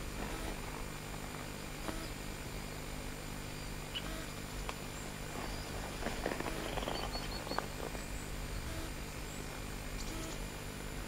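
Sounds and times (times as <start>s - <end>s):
steady low hum: 0.0s - 11.0s
light crackling and rustling: 4.6s - 8.2s.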